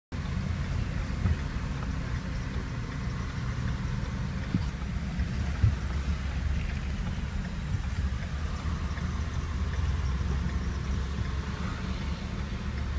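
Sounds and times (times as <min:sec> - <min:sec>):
car cabin rumble: 0:00.2 - 0:12.9.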